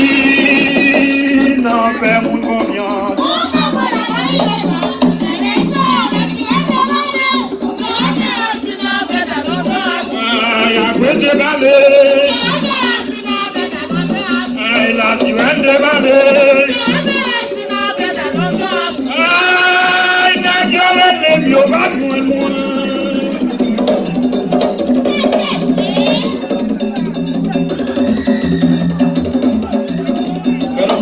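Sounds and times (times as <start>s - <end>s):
group of voices singing: 0.0s - 31.0s
percussion beat: 0.0s - 31.0s.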